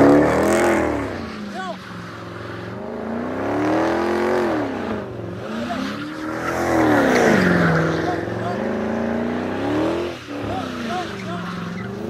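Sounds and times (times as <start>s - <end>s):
car engine revving: 0.0s - 12.0s
tyres squealing: 5.3s - 12.0s.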